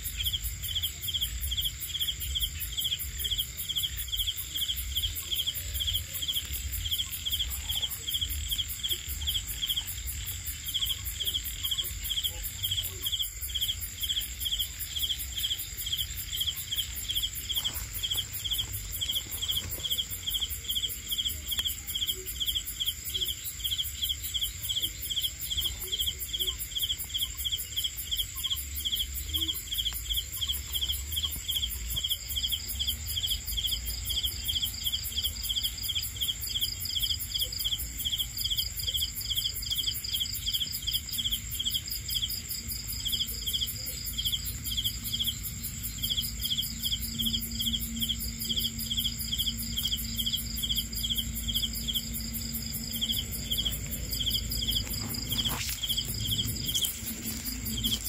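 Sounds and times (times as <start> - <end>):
cricket chirping: 0.0 - 58.0
fast pulsing insect call: 0.0 - 58.0
high-pitched insect drone: 42.8 - 58.0.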